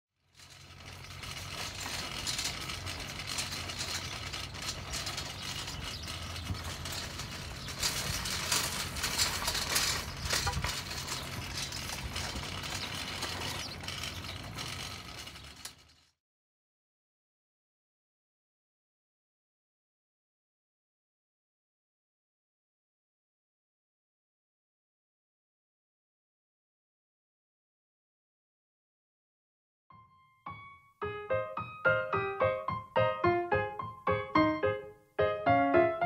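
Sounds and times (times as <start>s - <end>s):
shopping cart rattling: 0.2s - 16.1s.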